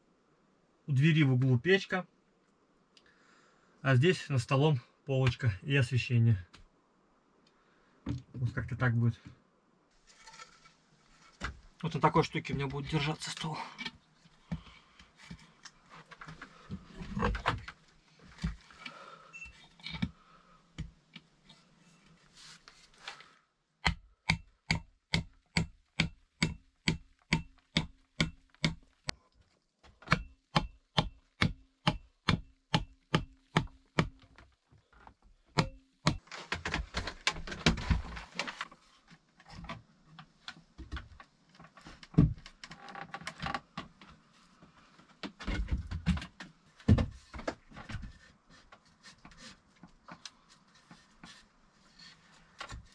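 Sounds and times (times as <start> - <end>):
rustling: 21.3 - 23.4.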